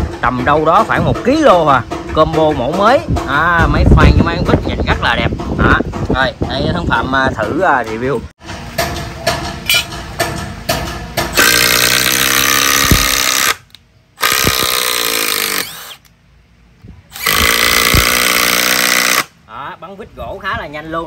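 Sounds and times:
impact driver hammering: 10.2 - 13.6.

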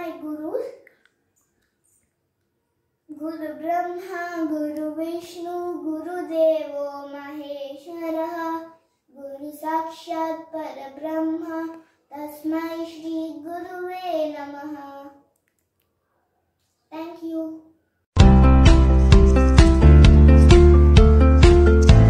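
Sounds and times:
young girl singing: 3.1 - 15.2, 16.9 - 17.6.

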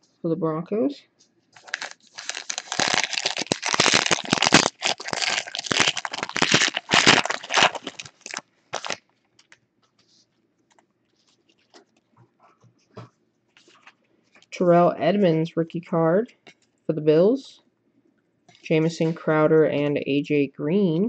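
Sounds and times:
foil pack tearing and crinkling: 1.6 - 9.5.

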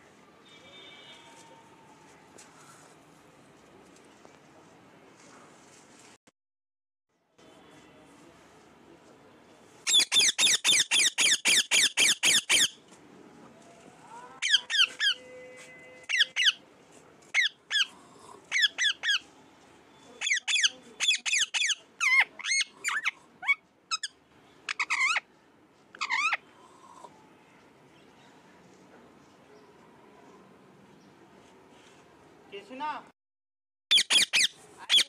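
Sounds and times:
parakeet calling: 9.9 - 12.8, 16.1 - 16.6, 17.4 - 19.3, 20.2 - 25.3, 26.0 - 26.4, 33.9 - 35.0.

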